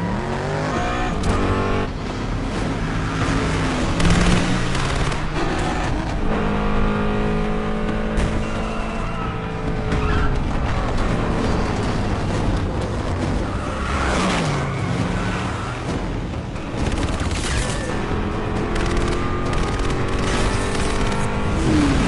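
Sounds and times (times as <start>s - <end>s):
engines revving hard: 0.0s - 22.0s
tyres skidding: 0.0s - 22.0s.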